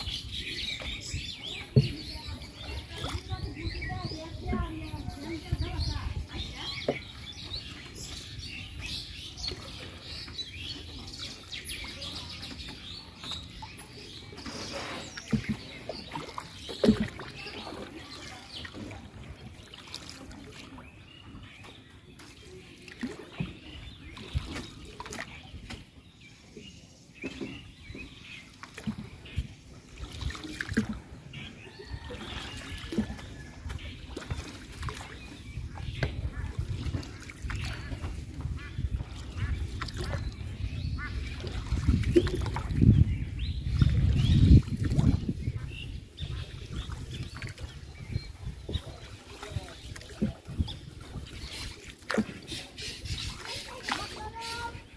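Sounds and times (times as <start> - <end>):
birds chirping: 0.0 - 54.9
water lapping at boat hull: 0.0 - 54.9
wooden knocks from boat: 0.7 - 8.2, 15.2 - 17.9, 27.2 - 29.5, 35.8 - 40.3, 41.3 - 42.9.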